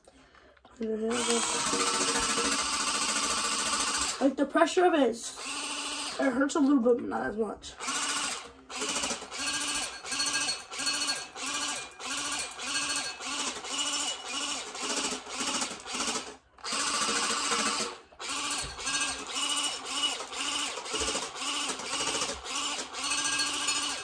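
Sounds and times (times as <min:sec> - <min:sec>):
toy water gun motor whirring: 0:01.0 - 0:04.3, 0:05.4 - 0:06.3, 0:07.8 - 0:24.0.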